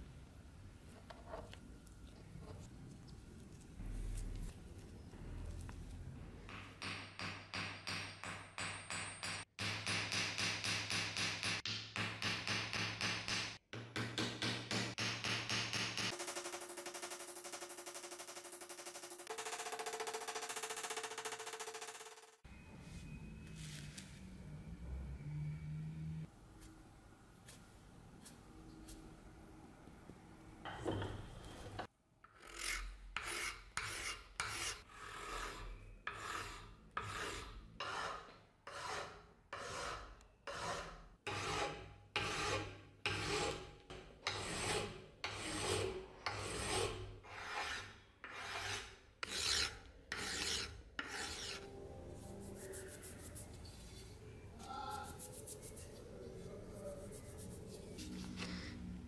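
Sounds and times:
file rasping on metal: 32.3 - 51.7.

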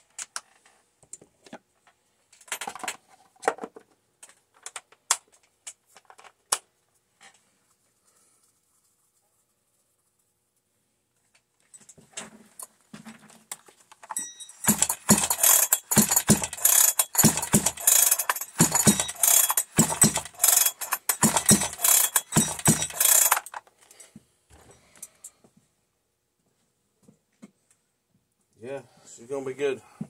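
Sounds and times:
plastic parts rattling and scraping: 1.4 - 6.5, 11.7 - 24.0
irregular plastic knocks: 14.1 - 23.6.

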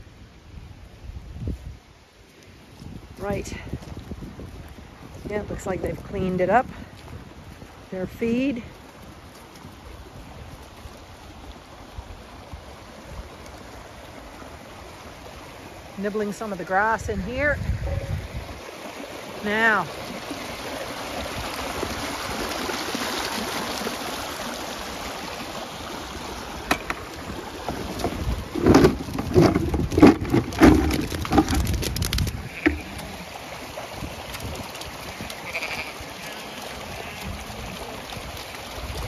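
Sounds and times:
floodwater rushing along channel: 0.0 - 39.0
loud knocks and thumps: 27.8 - 32.0
sheep bleating: 32.4 - 33.2, 35.1 - 37.8.

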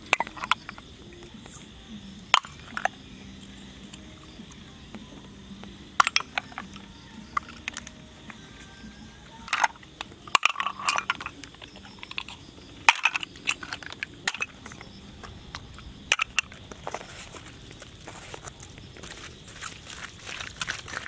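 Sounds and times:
snail shells cracking and crunching: 9.4 - 21.0.

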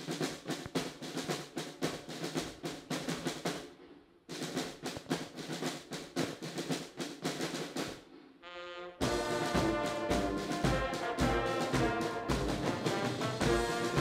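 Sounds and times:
snare drums rolling: 0.0 - 14.0
brass chord: 8.4 - 14.0.

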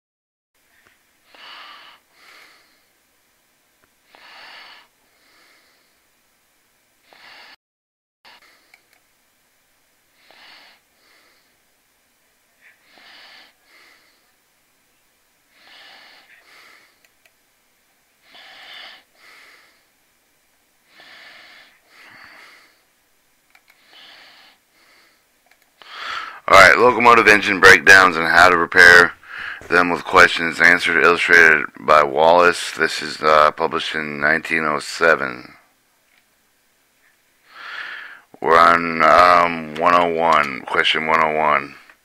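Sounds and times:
person breathing: 0.6 - 3.0, 4.1 - 6.1, 7.0 - 7.6, 10.2 - 11.6, 12.6 - 14.4, 15.5 - 17.0, 18.2 - 20.0, 20.9 - 22.9, 23.8 - 26.5, 29.2 - 29.8, 37.4 - 38.4
faint clicks: 23.4 - 23.8, 25.4 - 25.9.

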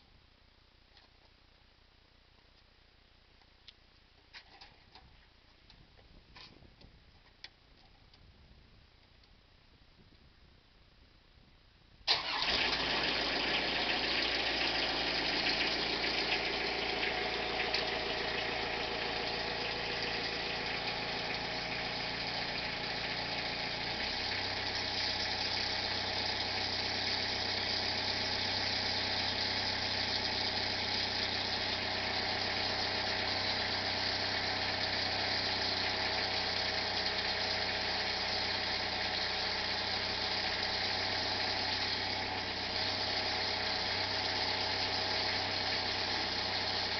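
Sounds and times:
engine running steadily: 12.1 - 46.9.

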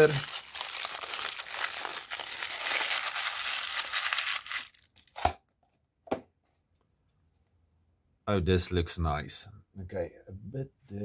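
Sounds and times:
paper crinkling and tearing: 0.0 - 5.2.

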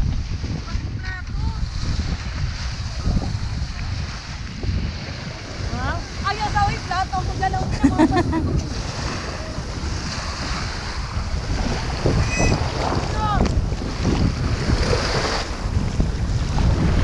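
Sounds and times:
waves washing on shore: 0.0 - 17.0
wind rumbling on microphone: 0.0 - 17.0
short pitched calls: 12.2 - 12.7.

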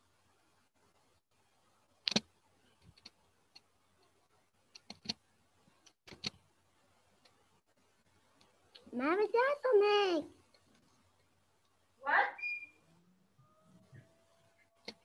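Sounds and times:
computer mouse clicks: 2.1 - 3.7, 4.7 - 5.2, 5.8 - 6.4.

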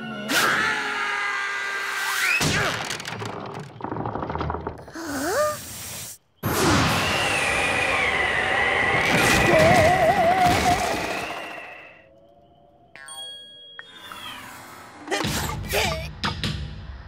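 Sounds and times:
wavering whistle: 6.8 - 12.8.

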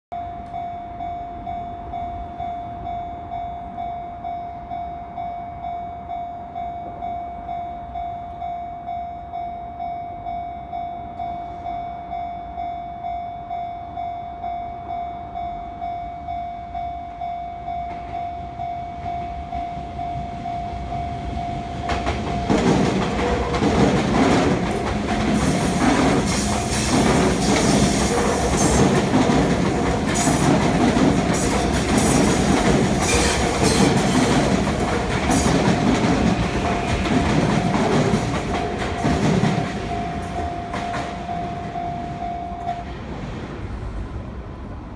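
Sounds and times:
level-crossing warning bell ringing: 0.1 - 42.9
electric train passing: 0.2 - 44.9
train wheels clacking over rail joints: 21.9 - 41.3.

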